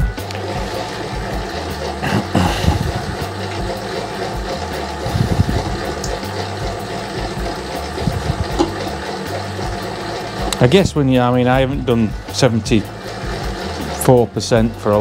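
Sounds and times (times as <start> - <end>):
mixer motor running: 0.0 - 15.0
dough knocking against bowl: 7.4 - 9.0.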